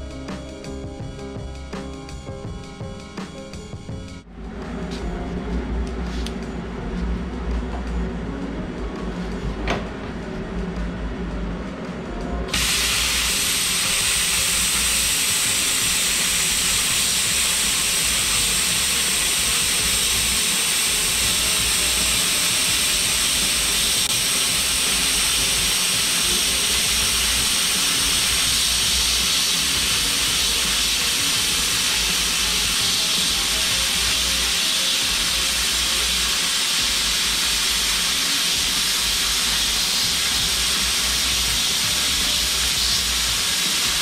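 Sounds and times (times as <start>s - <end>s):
welding arc sizzling: 12.5s - 44.0s.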